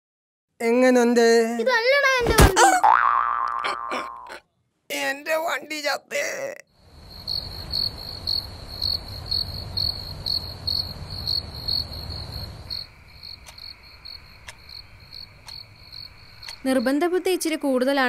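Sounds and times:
crickets chirping: 6.7s - 18.0s.

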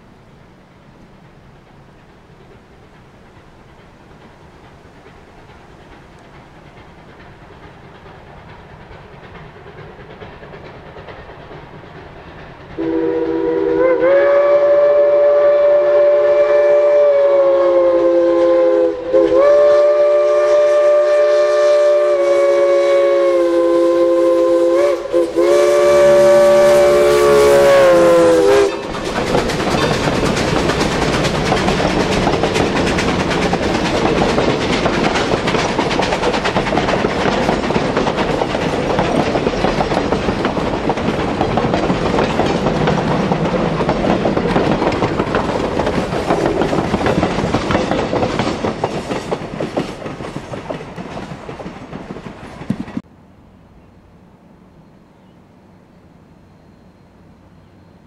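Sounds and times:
train wheels clattering on rails: 0.0s - 53.1s
steam locomotive whistle: 12.8s - 29.1s.

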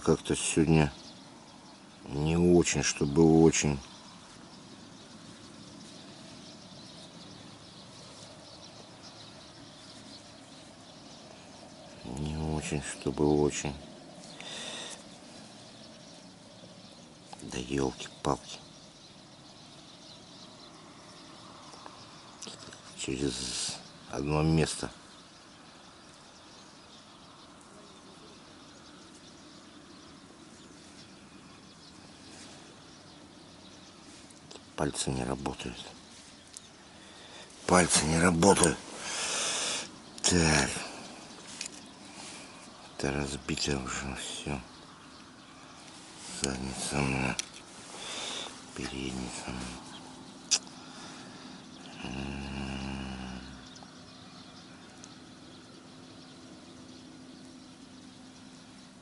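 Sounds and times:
faint outdoor hiss: 0.0s - 59.0s.

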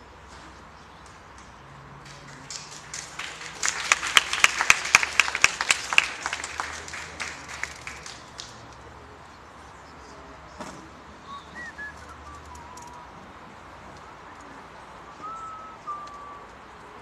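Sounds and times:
audience applause: 2.0s - 8.9s.

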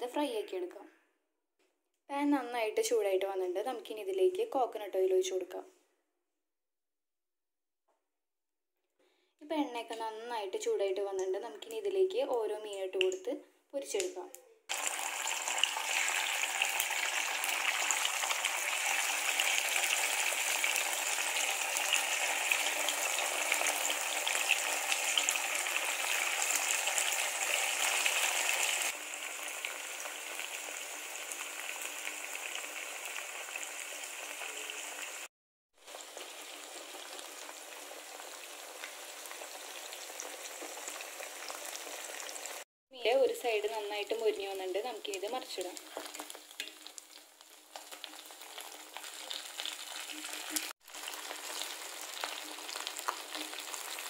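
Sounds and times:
fish sizzling in hot oil: 14.7s - 42.6s, 43.4s - 54.0s.

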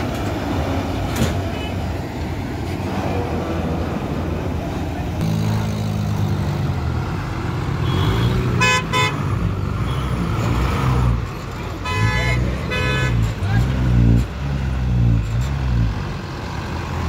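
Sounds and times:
bus diesel engine running: 0.0s - 17.0s
bus horn toots: 5.2s - 6.3s, 7.8s - 10.2s, 11.7s - 13.4s.

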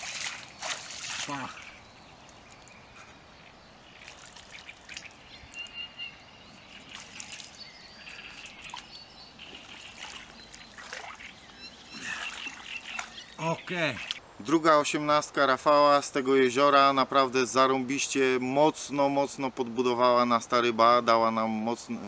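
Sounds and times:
water trickling and splashing: 0.0s - 14.3s
birds calling: 0.0s - 14.4s.

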